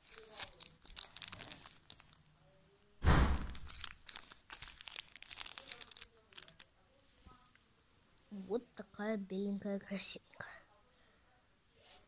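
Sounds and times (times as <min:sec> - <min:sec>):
foil wrapper crinkling and tearing: 0:00.0 - 0:02.4, 0:03.4 - 0:06.7
loud thump: 0:03.0 - 0:03.6.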